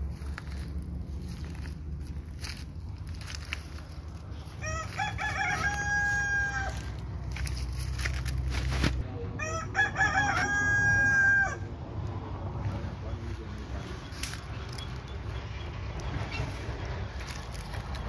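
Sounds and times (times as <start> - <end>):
low steady rumble: 0.0 - 18.0
rooster crowing: 4.3 - 7.1, 9.3 - 11.8.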